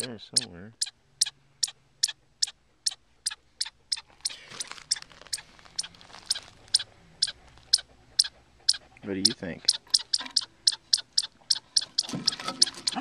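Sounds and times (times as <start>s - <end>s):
chipmunk alarm chips: 0.0s - 13.0s
soft rustling: 4.0s - 7.7s.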